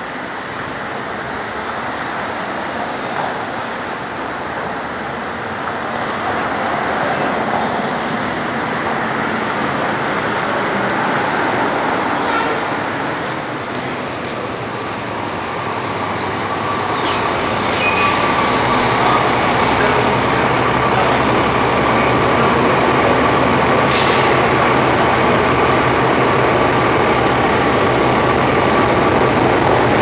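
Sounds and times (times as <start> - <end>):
train rumbling overhead: 0.0 - 30.0
high whine: 13.4 - 30.0
wheel squeals: 16.3 - 19.4.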